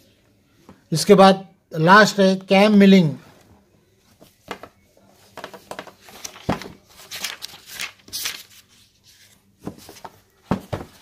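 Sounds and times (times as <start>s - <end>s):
paper pages turning: 5.2s - 10.2s.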